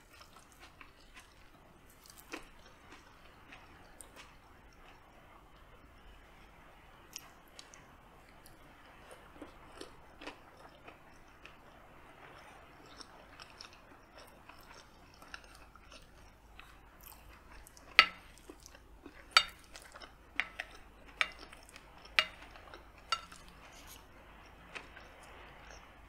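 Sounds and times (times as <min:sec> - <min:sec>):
quiet chewing: 0:00.0 - 0:05.8, 0:07.1 - 0:26.0
cutlery clinking on a glass plate: 0:17.9 - 0:18.5, 0:19.1 - 0:24.0.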